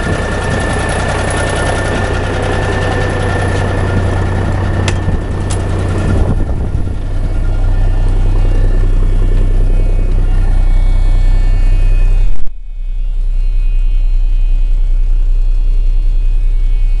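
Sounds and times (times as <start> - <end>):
diesel truck engine idling: 0.0 - 12.3.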